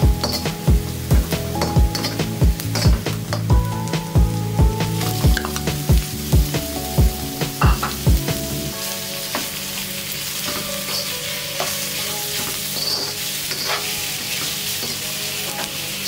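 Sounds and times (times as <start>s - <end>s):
background music with beat: 0.0s - 16.0s
meat sizzling in hot oil: 0.0s - 16.0s
metal spatula scraping pan: 10.4s - 15.0s.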